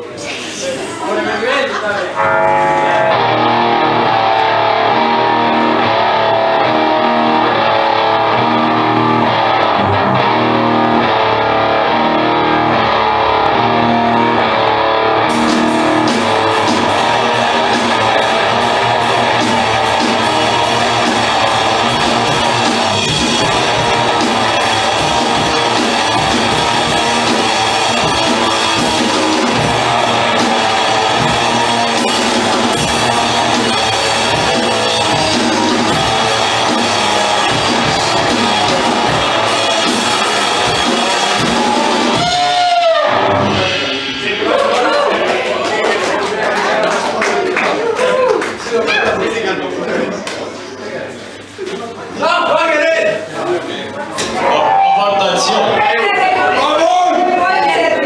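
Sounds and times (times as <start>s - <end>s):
electric guitars: 2.1s - 46.6s
drum kit and cymbals: 15.2s - 45.3s.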